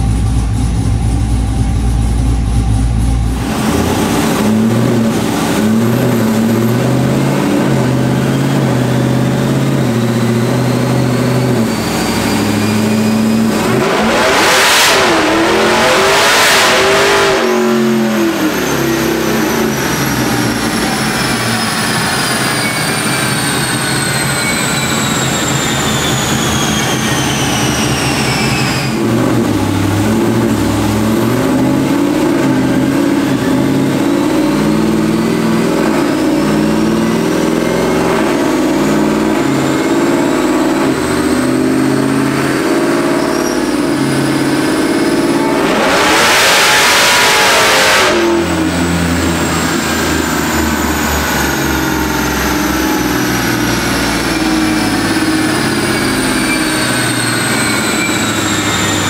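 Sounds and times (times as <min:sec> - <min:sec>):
supercharger whine: 0:00.0 - 0:59.0
loud rush: 0:12.1 - 0:59.0.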